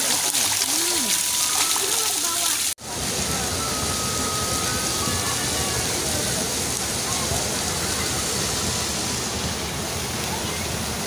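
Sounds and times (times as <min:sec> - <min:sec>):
faint distant voices: 0:00.0 - 0:11.0
stream flowing over stones: 0:00.0 - 0:11.0.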